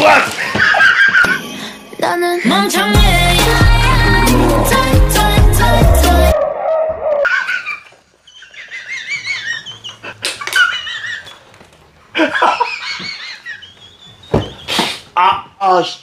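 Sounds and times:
upbeat background music: 0:01.2 - 0:06.4
high-pitched laughter: 0:07.2 - 0:11.5, 0:12.1 - 0:14.0
man laughing high-pitched: 0:12.2 - 0:13.6.

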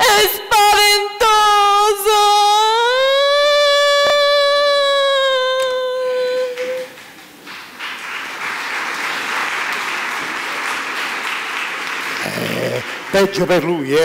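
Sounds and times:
audience applauding: 0:05.6 - 0:14.0.

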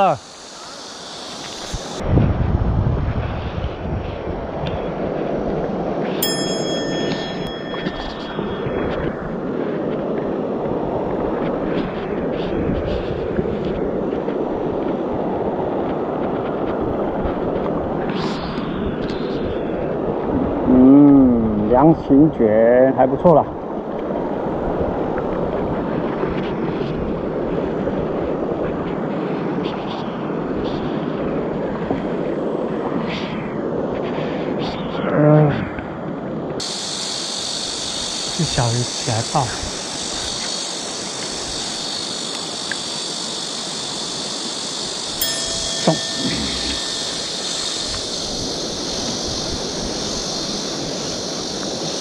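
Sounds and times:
stream water flowing: 0:37.6 - 0:52.0.

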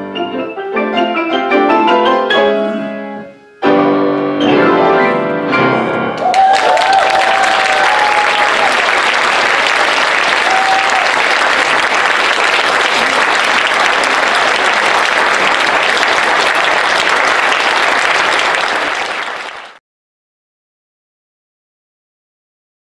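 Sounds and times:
audience applauding: 0:06.2 - 0:19.8.

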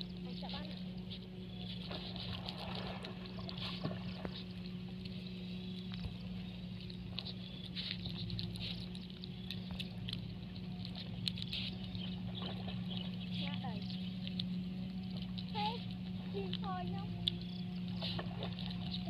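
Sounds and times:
puppy chewing and smacking: 0:00.0 - 0:19.0.

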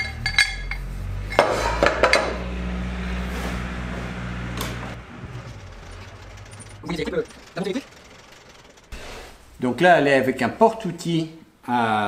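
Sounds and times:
metal ring clanking on table: 0:00.0 - 0:02.4
electric motor humming: 0:00.8 - 0:09.6.

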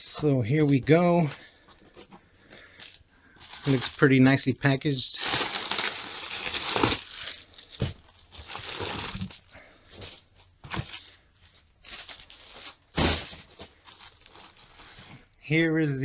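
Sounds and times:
plastic mailer bag crinkling: 0:03.4 - 0:04.2, 0:05.1 - 0:15.0.

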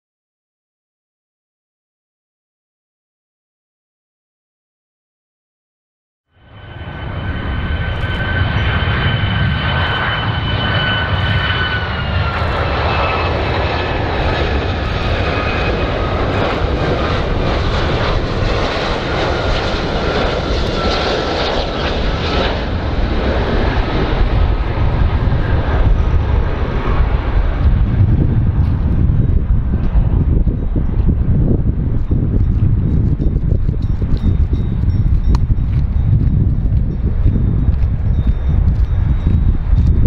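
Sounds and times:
airliner engines rumbling and whining: 0:06.3 - 0:40.0.

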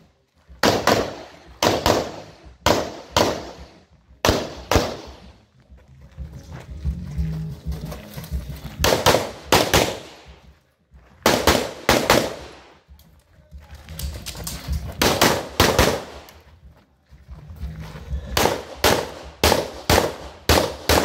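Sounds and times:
pistol shots with echo: 0:00.6 - 0:05.3, 0:08.8 - 0:10.4, 0:11.2 - 0:12.8, 0:15.0 - 0:16.4, 0:18.4 - 0:21.0.

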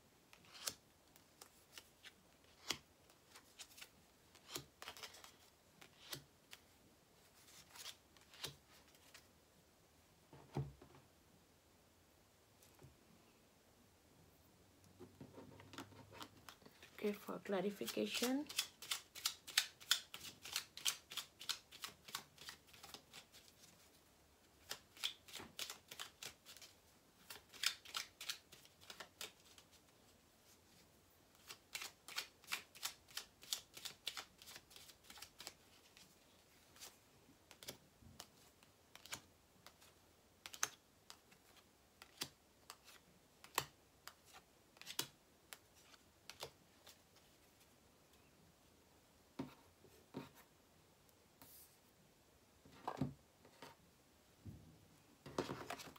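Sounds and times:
cards being shuffled: 0:00.4 - 0:09.3, 0:17.8 - 0:23.8, 0:24.6 - 0:29.8, 0:31.3 - 0:36.1, 0:36.7 - 0:47.4, 0:55.4 - 0:55.9.

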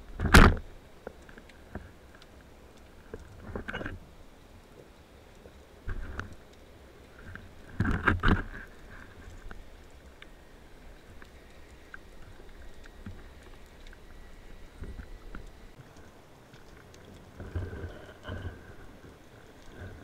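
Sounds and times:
muffled underwater knocks and scrapes: 0:03.1 - 0:04.0, 0:05.8 - 0:06.4, 0:07.1 - 0:09.6, 0:16.6 - 0:20.0
low underwater hiss: 0:08.4 - 0:20.0.

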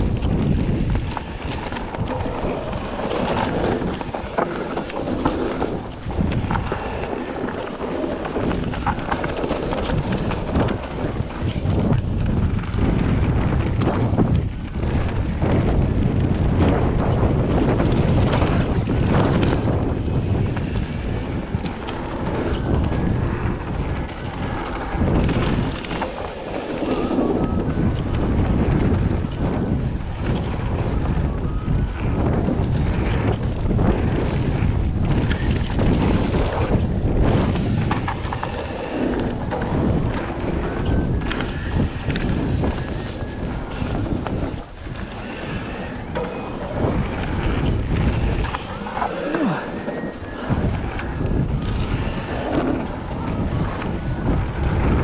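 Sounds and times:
tyres rolling over loose stones: 0:00.0 - 0:13.2
bike rattling: 0:00.0 - 0:55.0
wind rushing over microphone: 0:00.0 - 0:55.0.

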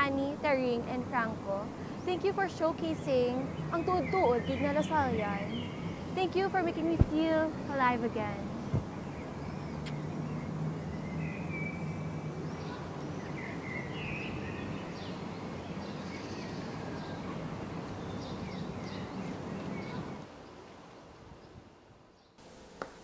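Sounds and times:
birds chirping: 0:00.0 - 0:20.6
steady background hiss: 0:00.0 - 0:23.0.

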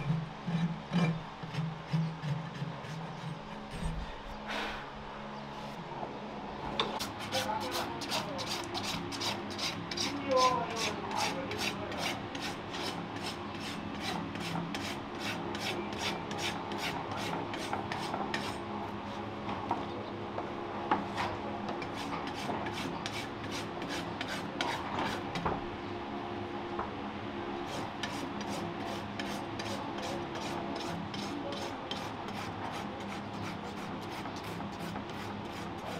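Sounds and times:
rasp filing a hoof: 0:00.0 - 0:04.3, 0:06.9 - 0:18.6, 0:21.8 - 0:25.4, 0:27.7 - 0:35.9.

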